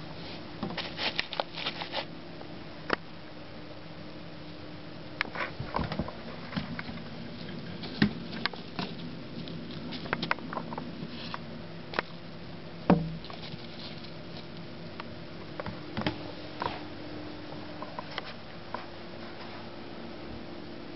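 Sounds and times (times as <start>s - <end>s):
faint steady hum: 0.0s - 20.9s
rabbit moving on wood chips: 0.1s - 2.1s, 5.3s - 12.2s, 13.2s - 14.8s.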